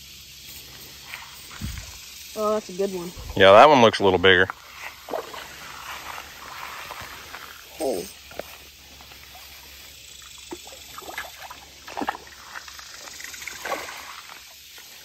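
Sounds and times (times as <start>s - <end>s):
fish splashing in water: 4.8s - 7.3s, 9.3s - 15.0s.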